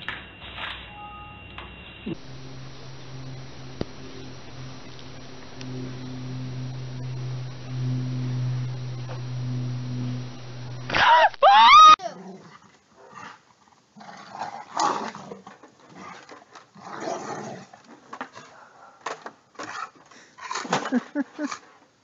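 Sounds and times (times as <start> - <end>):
low hum: 0.0 - 12.0
rising animal cries: 10.9 - 12.1.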